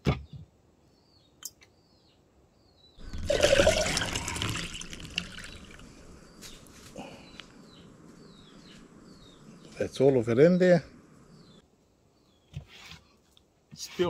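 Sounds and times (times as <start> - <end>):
water pouring into jug with ice: 3.0 - 6.0.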